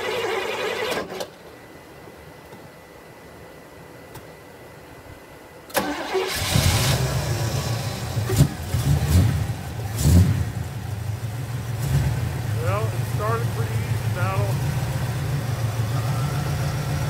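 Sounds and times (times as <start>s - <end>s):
car engine starting and revving: 5.8s - 17.0s.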